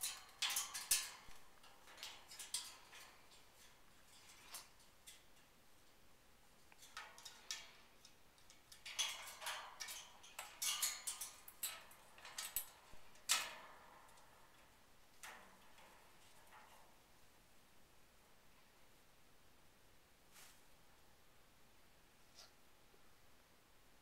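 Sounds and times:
parrot clicking and tapping cage: 0.0 - 6.0, 6.6 - 17.0.

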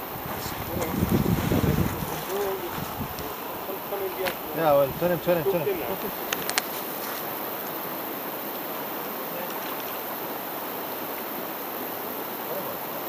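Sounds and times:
river rushing: 0.0 - 13.0.

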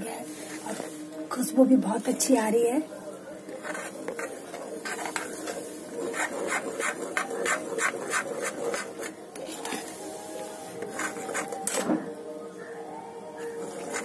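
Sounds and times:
spoon scraping a pan: 3.6 - 11.8, 13.5 - 14.0.

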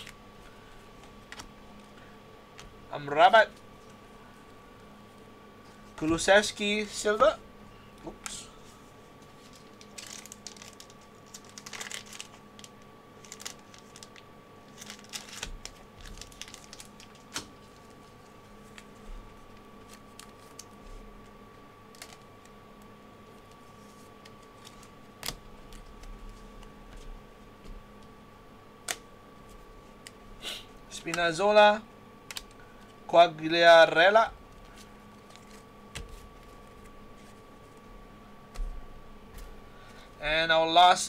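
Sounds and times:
faint steady hum: 0.0 - 41.0
trading cards clicking and rustling: 9.2 - 22.6, 34.5 - 37.8.

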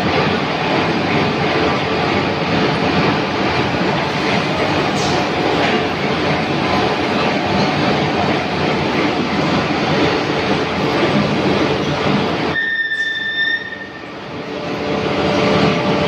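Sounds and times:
short high beep: 12.6 - 14.0.

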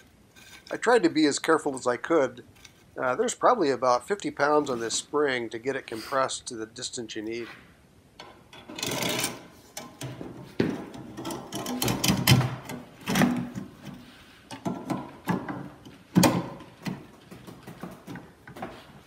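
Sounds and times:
metal clanks and scrapes: 8.6 - 14.9.

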